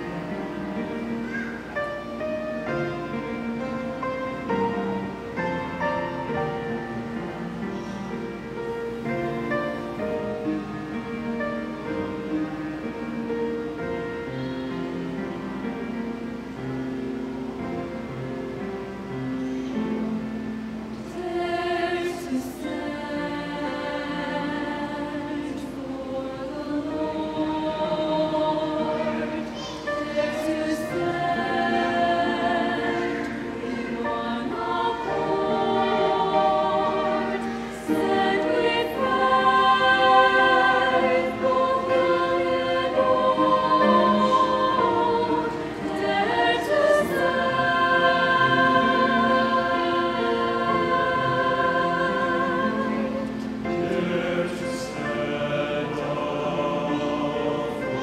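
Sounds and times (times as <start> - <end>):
mixed choir singing: 0.0 - 58.0.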